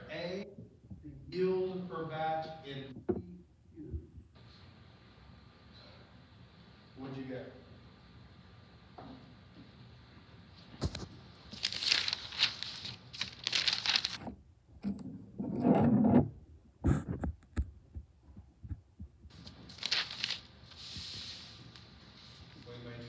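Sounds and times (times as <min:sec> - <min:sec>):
rustling handling noise: 0:10.6 - 0:14.4, 0:19.3 - 0:22.6.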